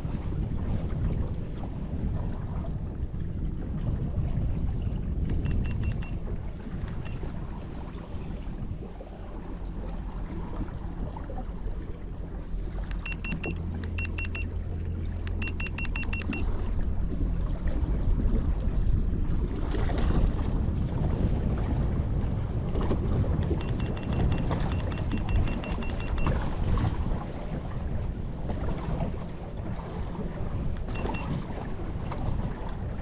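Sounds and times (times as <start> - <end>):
wind and water rumbling: 0.0 - 33.0
short high electronic beeps: 5.4 - 6.2, 13.0 - 14.5, 15.3 - 16.4, 23.6 - 26.3, 31.0 - 31.3.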